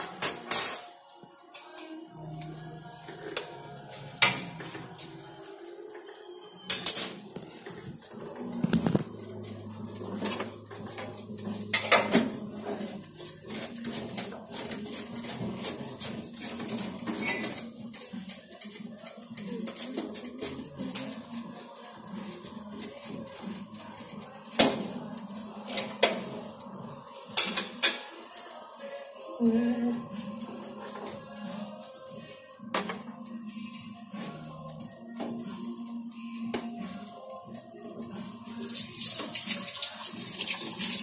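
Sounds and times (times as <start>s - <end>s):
cutlery and dishes clinking: 0.0s - 29.2s, 30.3s - 41.0s.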